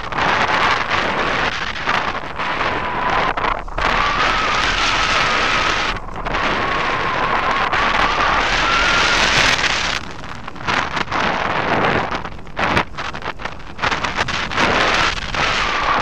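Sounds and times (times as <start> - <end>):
wind buffeting microphone: 0.0 - 16.0
faint high whistle: 3.8 - 9.7.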